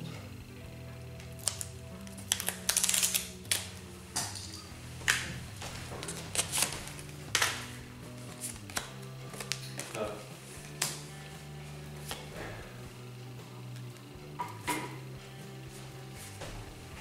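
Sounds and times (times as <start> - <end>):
quiet background music: 0.0 - 17.0
wrapper crinkling and rustling: 1.4 - 3.7, 6.0 - 7.6.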